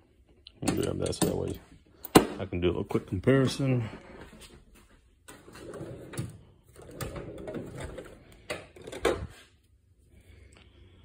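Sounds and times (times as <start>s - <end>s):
drawer being pulled open: 5.4s - 8.2s.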